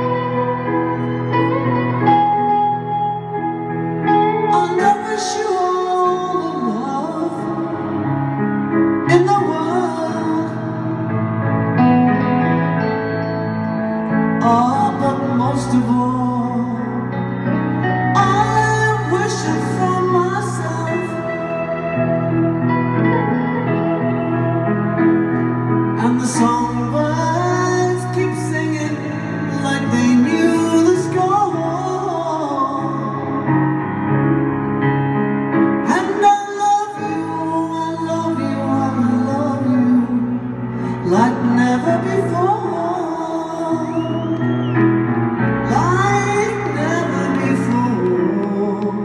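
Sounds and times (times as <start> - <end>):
electric guitar: 0.0 - 49.0
grand piano chords: 0.0 - 49.0
woman singing: 4.5 - 8.0, 9.1 - 11.1.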